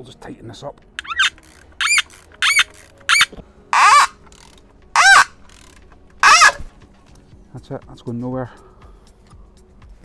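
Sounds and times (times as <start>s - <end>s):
ratchet pawl clicking: 1.0s - 6.6s.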